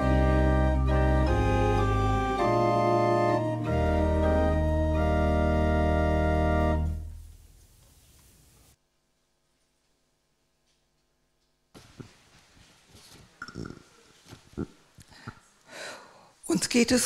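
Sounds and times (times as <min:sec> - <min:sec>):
pipe organ playing chords: 0:00.0 - 0:07.3.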